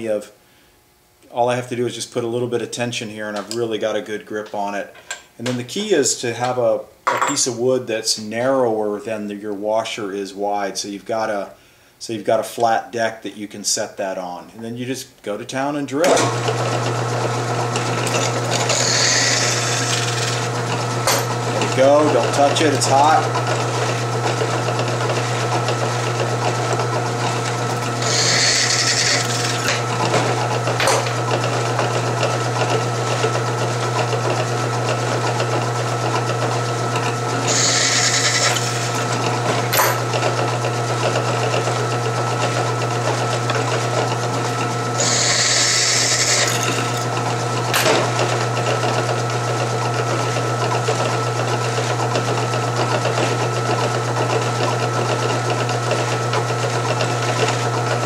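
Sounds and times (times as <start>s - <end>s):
drill press motor running: 16.2s - 58.0s
drill bit cutting metal washer: 17.3s - 24.0s, 25.0s - 31.3s, 36.9s - 40.5s, 42.5s - 48.7s.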